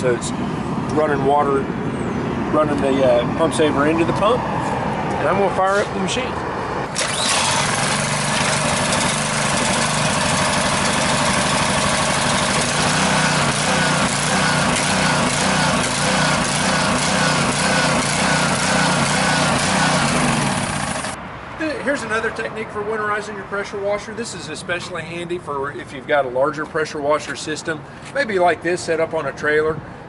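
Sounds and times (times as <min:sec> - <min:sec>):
small gasoline engine running: 0:06.9 - 0:21.2.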